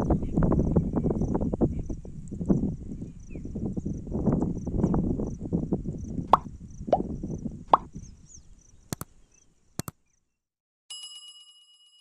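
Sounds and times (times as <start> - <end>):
mouse-click sounds: 8.9 - 9.1.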